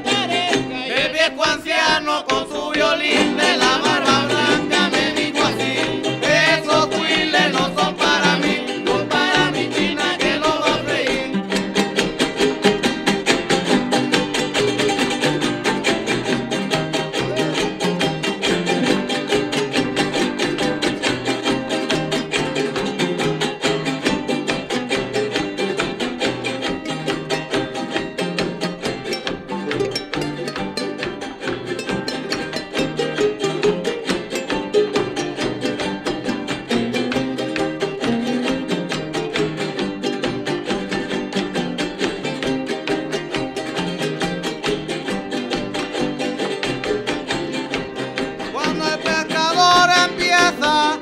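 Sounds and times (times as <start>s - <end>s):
man singing: 0.0s - 11.4s, 48.4s - 51.0s
jaranas strumming: 0.0s - 51.0s.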